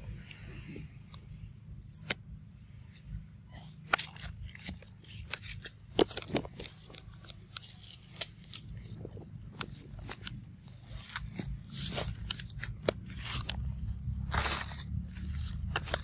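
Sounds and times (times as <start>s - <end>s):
footsteps on dry leaves: 4.0s - 16.0s.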